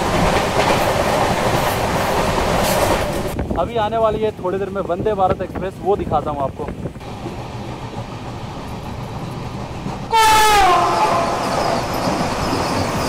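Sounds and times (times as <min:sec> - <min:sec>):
rush of passing train coaches: 0:00.0 - 0:13.0
train rumbling: 0:00.0 - 0:13.0
train horn: 0:10.1 - 0:11.8.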